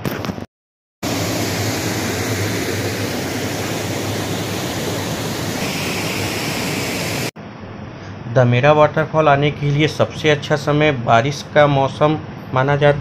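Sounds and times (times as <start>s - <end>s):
waterfall rushing over rocks: 1.1s - 7.3s.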